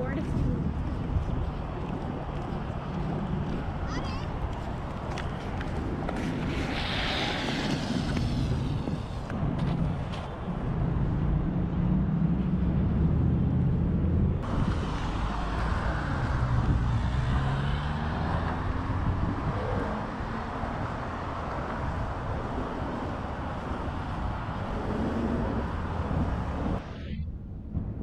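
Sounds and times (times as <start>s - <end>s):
vehicle engines passing: 0.0s - 27.9s
road noise hiss: 4.0s - 11.2s, 14.4s - 27.2s.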